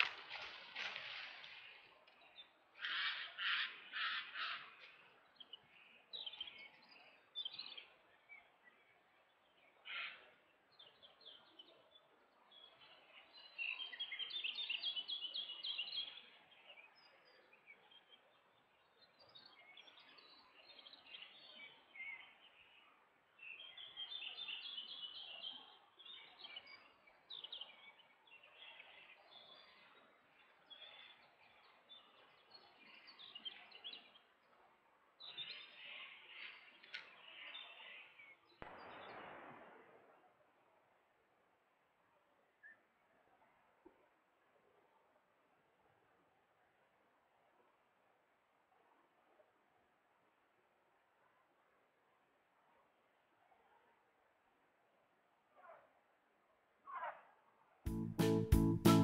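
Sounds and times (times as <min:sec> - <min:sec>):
songbirds singing: 0:00.0 - 0:39.2.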